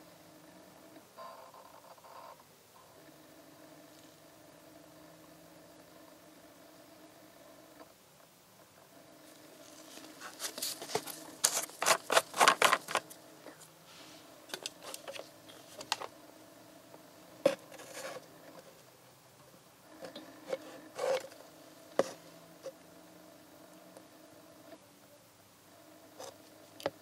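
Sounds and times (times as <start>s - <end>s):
faint steady hum: 0.0s - 27.0s
plastic bottle handling crinkles: 9.7s - 13.2s
foil seal tearing: 10.3s - 13.1s.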